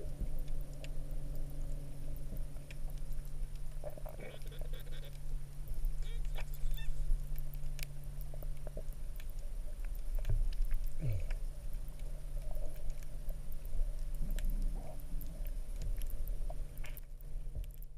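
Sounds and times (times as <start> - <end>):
steady low underwater hum: 0.0 - 17.9.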